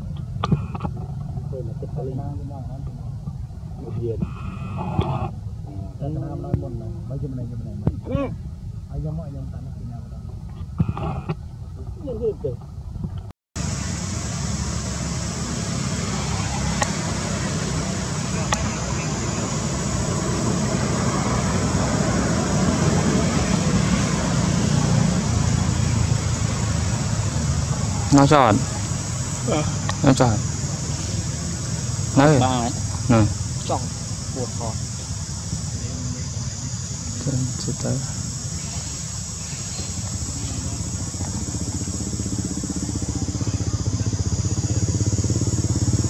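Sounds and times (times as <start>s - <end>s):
even hiss: 0.0s - 11.4s, 13.6s - 46.0s
small motorbike engine: 13.6s - 46.0s.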